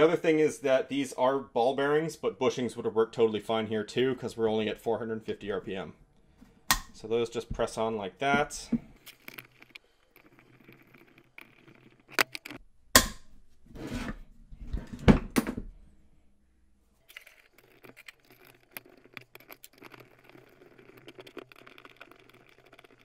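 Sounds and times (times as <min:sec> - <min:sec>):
faint scratching and ticking: 0:07.3 - 0:12.6, 0:17.0 - 0:23.0.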